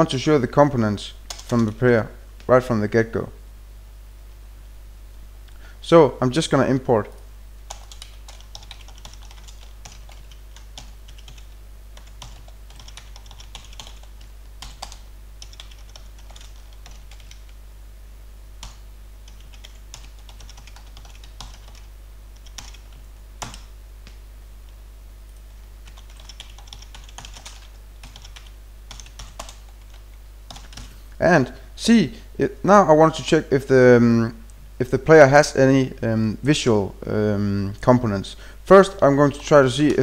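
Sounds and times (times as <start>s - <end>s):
steady low hum: 0.0s - 40.0s
keyboard typing: 7.7s - 17.6s, 18.6s - 24.2s, 25.3s - 31.0s.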